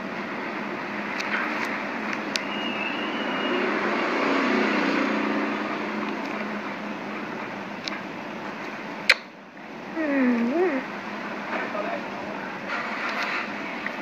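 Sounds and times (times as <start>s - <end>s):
sharp click: 9.1s - 9.3s.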